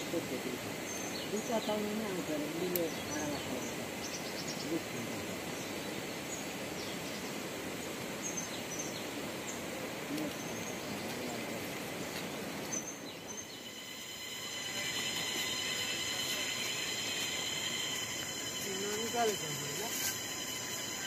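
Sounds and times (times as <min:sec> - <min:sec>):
background hiss: 0:00.0 - 0:21.0
high bird chirps: 0:12.6 - 0:21.0.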